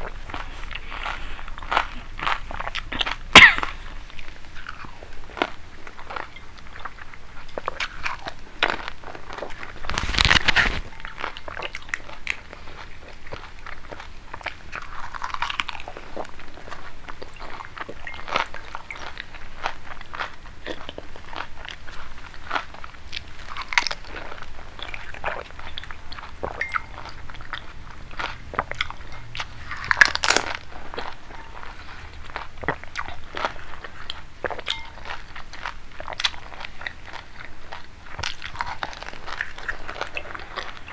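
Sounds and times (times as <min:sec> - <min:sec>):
crisp shells crunching: 0:07.6 - 0:14.0, 0:14.8 - 0:40.9.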